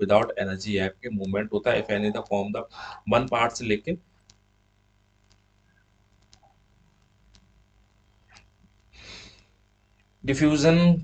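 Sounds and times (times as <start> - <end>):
faint clicks: 4.2 - 4.6, 5.2 - 10.2
short soft hiss: 8.2 - 9.6.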